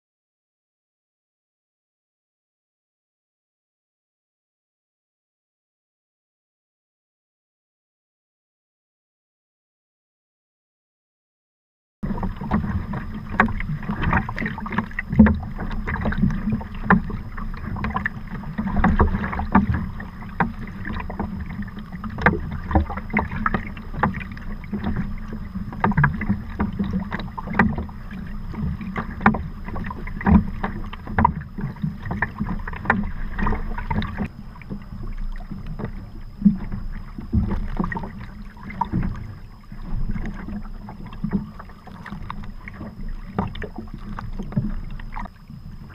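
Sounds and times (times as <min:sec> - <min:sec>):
paddle splashes and slaps: 0:12.0 - 0:45.9
water rushing along hull: 0:12.0 - 0:45.9.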